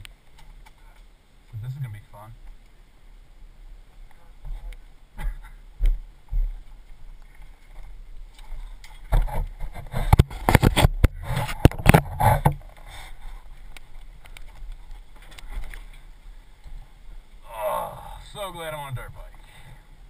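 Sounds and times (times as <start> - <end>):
knocks and rubbing on microphone: 9.1 - 12.8.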